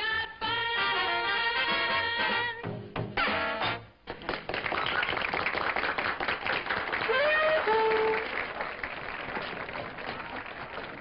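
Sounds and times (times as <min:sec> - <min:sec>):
crowd applauding and cheering: 0:04.1 - 0:11.0.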